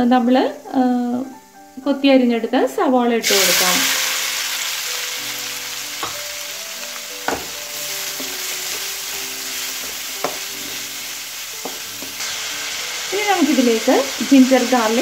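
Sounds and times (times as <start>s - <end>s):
onions sizzling in oil: 3.2s - 15.0s
spatula knocking against pan: 7.2s - 7.6s.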